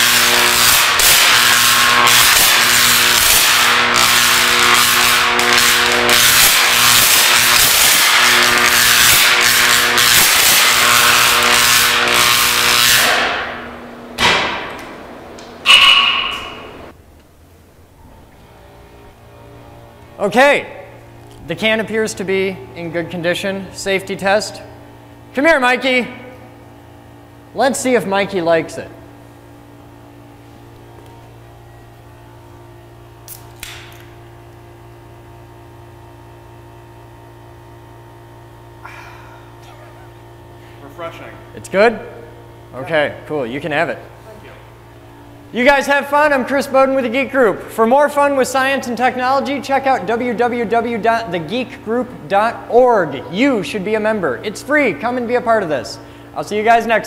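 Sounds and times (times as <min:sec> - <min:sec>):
sharp electrical snaps: 0:00.0 - 0:16.7, 0:33.1 - 0:34.9
high-voltage arc buzzing: 0:00.0 - 0:17.0, 0:17.8 - 0:57.0
low electrical hum: 0:00.0 - 0:57.0.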